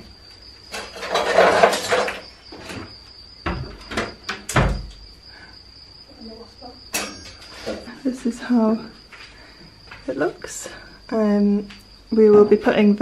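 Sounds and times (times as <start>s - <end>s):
high insect drone: 0.0s - 13.0s
wooden board scraping: 0.8s - 2.7s.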